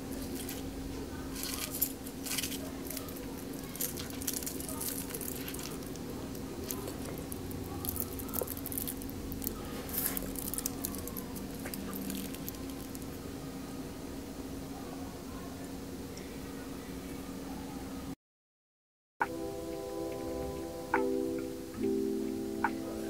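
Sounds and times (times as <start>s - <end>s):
foil liner crinkling: 0.0s - 13.2s
steady low hum: 0.0s - 18.2s, 19.2s - 23.0s.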